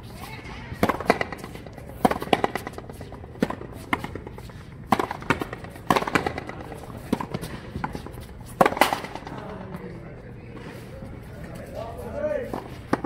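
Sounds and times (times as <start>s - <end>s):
racket striking ball: 0.7s - 9.4s, 12.5s - 13.0s.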